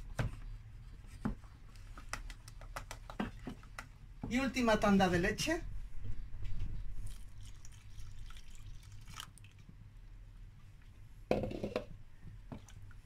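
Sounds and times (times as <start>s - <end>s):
milk pouring into sauce: 7.0s - 9.8s.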